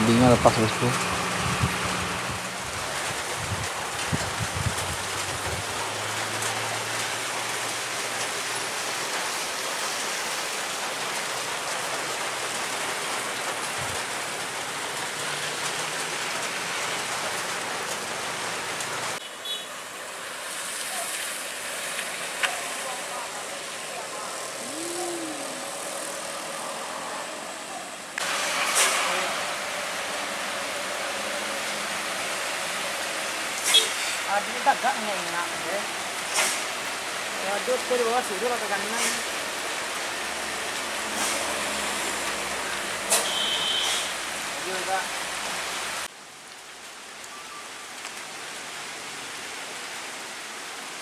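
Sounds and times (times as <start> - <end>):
car and truck engines: 0.0 - 3.6, 4.6 - 8.8, 19.1 - 34.3, 40.1 - 44.4
rain: 0.0 - 51.0
tyres hissing on wet road: 0.0 - 51.0.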